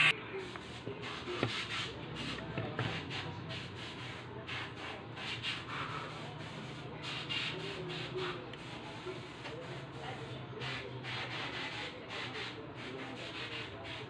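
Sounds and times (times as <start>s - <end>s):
circuit board rubbing and scraping: 0.0s - 2.4s.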